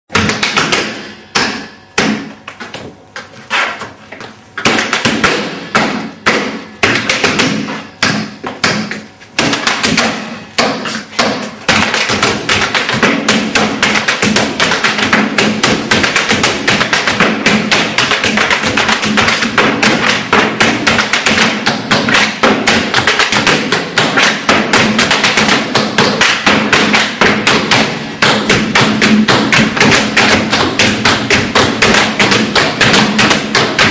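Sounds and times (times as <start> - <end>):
tap shoes on stage floor: 8.4 - 33.9.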